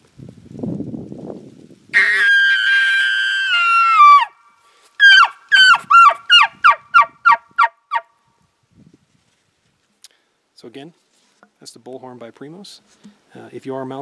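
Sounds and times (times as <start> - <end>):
elk bugle call: 2.0 - 2.5, 5.0 - 8.0.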